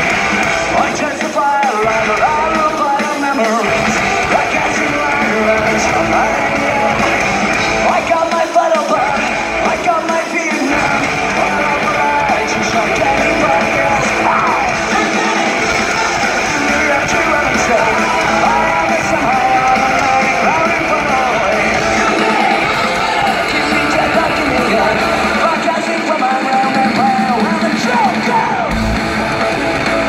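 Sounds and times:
person singing: 0.0 - 30.0
rock band playing live: 0.0 - 30.0.

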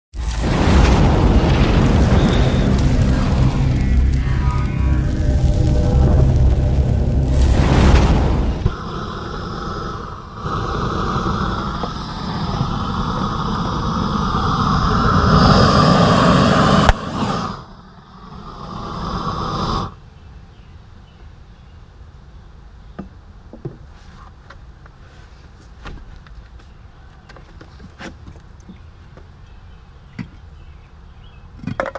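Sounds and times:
propane torch flame roaring: 0.1 - 19.9
beer spraying: 0.2 - 17.6.

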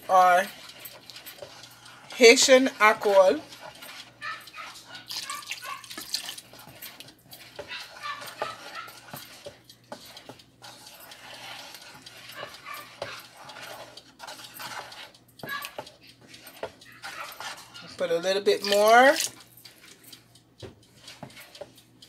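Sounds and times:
spoon scraping plastic bowl: 0.0 - 20.0, 20.9 - 21.9
liquid sloshing: 3.1 - 17.9.

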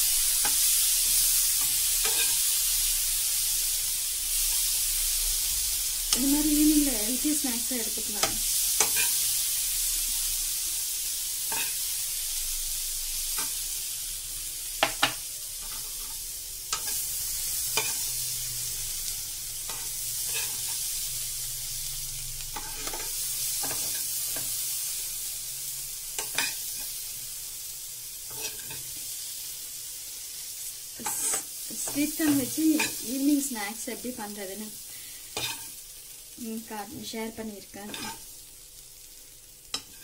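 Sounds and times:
steel spoon scraping a pan: 0.0 - 2.9, 7.8 - 9.3, 11.4 - 11.9, 14.8 - 21.0, 22.4 - 24.6, 26.1 - 27.0, 28.3 - 29.0, 31.0 - 33.1, 35.4 - 35.8, 37.8 - 38.3, 39.7 - 40.0
corn sizzling in a frying pan: 0.0 - 40.0.

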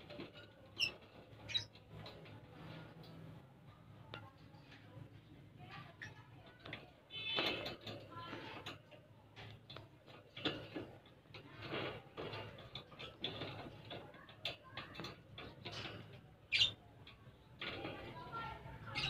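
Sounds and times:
birds chirping and squawking: 0.0 - 3.2, 10.4 - 19.0.

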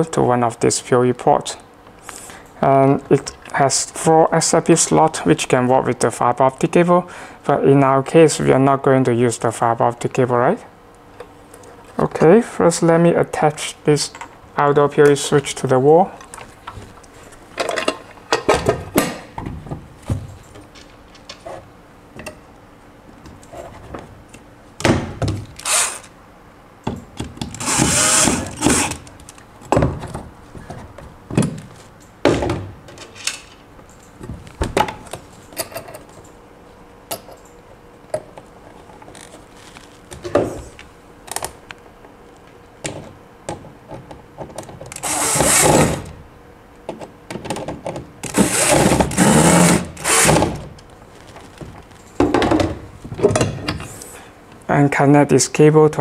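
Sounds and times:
cordless drill driving screws: 25.6 - 26.1, 27.6 - 29.0, 45.0 - 46.0, 48.3 - 50.5.

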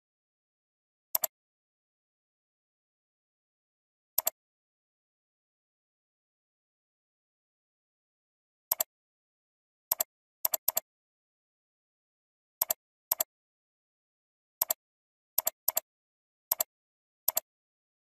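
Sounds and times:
computer mouse clicks: 9.9 - 10.8, 12.6 - 13.3, 15.4 - 15.9, 16.5 - 16.7, 17.3 - 17.5.

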